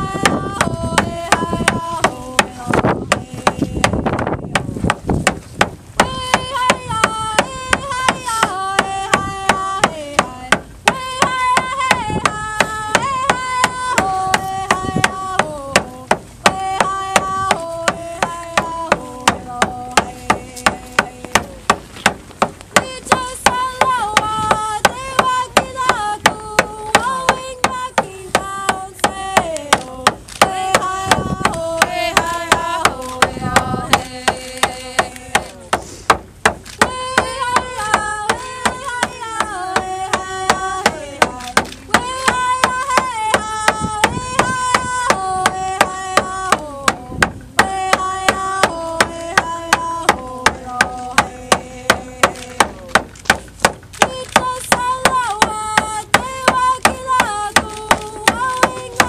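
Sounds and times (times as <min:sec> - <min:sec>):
voices singing: 0:00.0 - 0:05.2, 0:05.9 - 0:36.0, 0:36.6 - 0:59.0
hand drum beating: 0:36.1 - 0:59.0.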